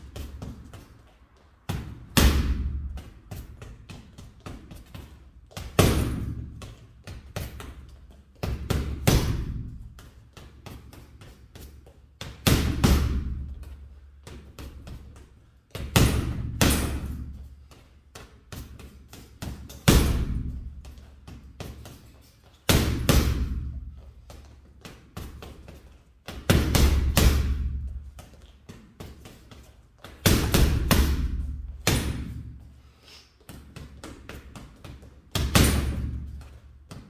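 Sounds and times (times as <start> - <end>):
punches thudding on heavy bag: 1.7 - 3.4, 5.6 - 6.6, 8.5 - 9.8, 12.3 - 13.5, 15.8 - 17.3, 19.8 - 20.8, 22.7 - 23.9, 26.3 - 28.0, 30.1 - 32.6, 35.3 - 36.4.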